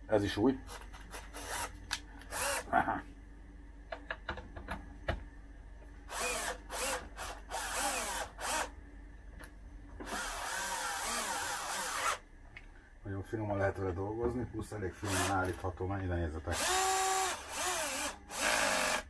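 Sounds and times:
cordless drill driving screws: 6.1 - 8.7, 10.0 - 12.2, 16.5 - 19.0.

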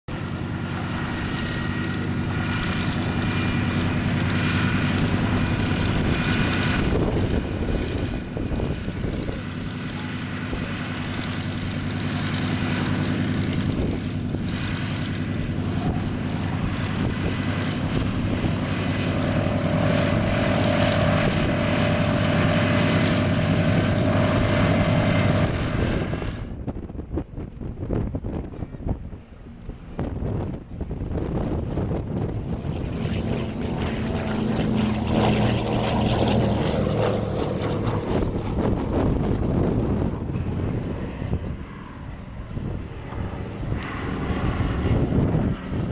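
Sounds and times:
propeller plane engines running: 0.0 - 45.9.

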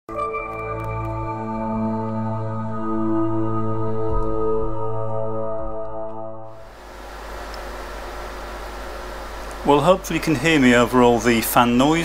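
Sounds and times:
sparkling notes: 0.1 - 6.4
ambient music with held chords: 0.1 - 6.8.

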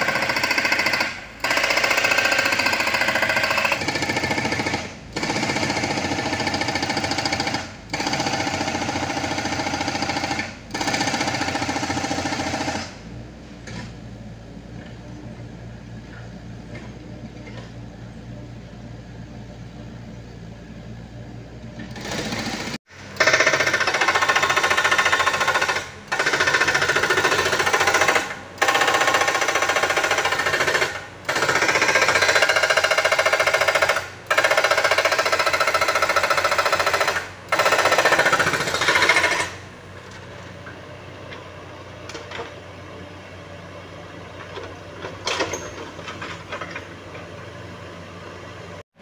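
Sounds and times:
excavator engine running: 0.0 - 48.8
hydraulic breaker hammering rock: 21.9 - 39.6.

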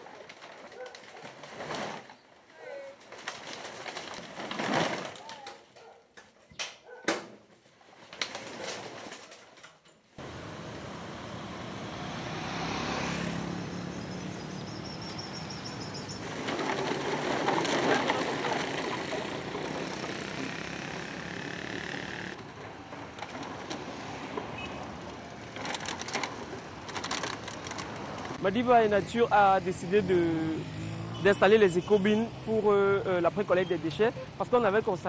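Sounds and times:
outdoor noise with vehicles: 0.0 - 35.0.

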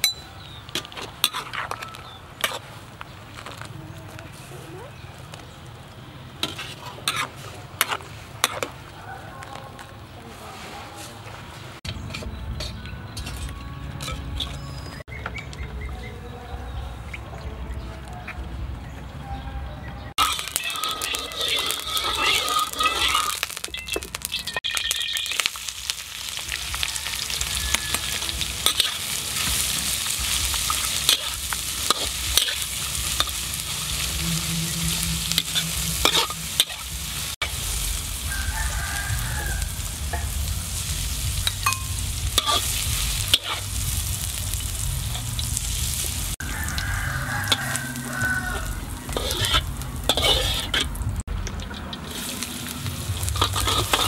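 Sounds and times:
metal spatula scraping wok: 0.1 - 2.8, 6.4 - 8.8, 10.3 - 15.0, 20.2 - 54.0
hot oil sizzling: 20.2 - 54.0.

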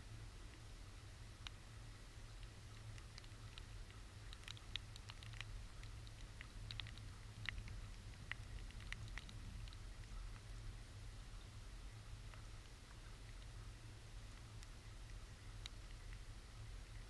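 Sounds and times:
water drops ticking: 2.4 - 10.6.

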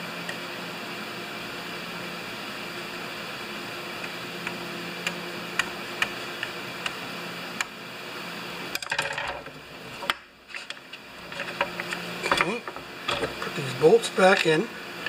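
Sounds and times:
steady background hum: 0.0 - 15.0
chainsaw carburetor parts clicking: 14.2 - 14.6.

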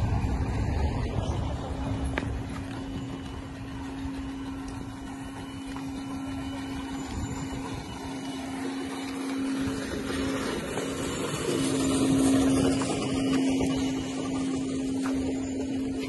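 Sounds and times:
low rumble: 0.0 - 8.4
steady motor hum: 0.0 - 16.0.

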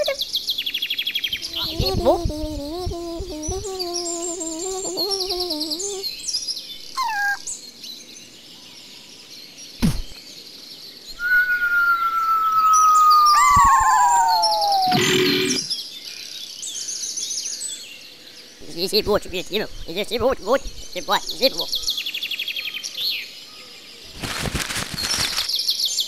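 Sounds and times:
birdsong with small chirps: 0.0 - 26.0
wavering voice-like tone: 1.5 - 6.1, 13.6 - 15.7
long falling whistle: 11.2 - 15.7.

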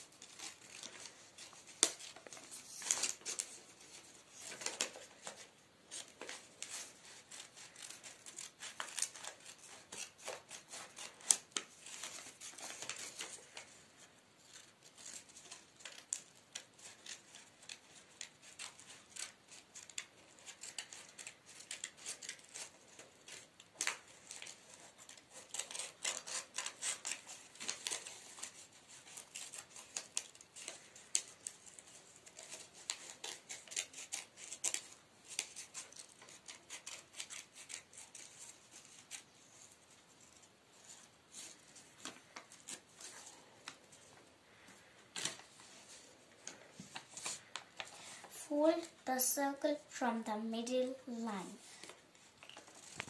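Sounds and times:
scissors cutting paper: 0.2 - 13.8, 14.5 - 39.9.

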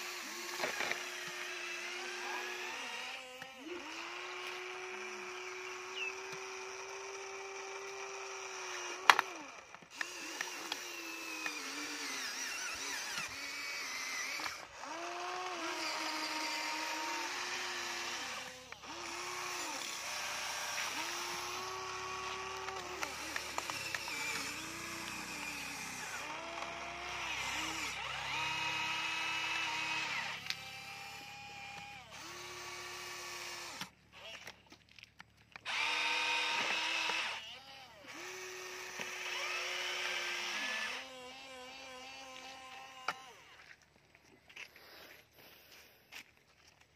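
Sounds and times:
toy electric motors whining: 0.0 - 43.8.

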